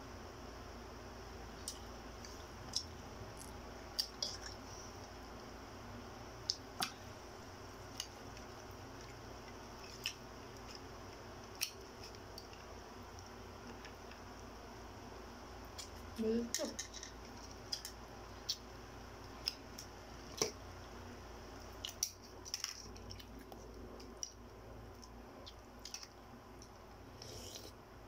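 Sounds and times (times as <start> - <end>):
low room hum: 0.0 - 28.0
chewing and eating clicks: 7.9 - 14.4, 15.7 - 20.6, 21.8 - 26.8.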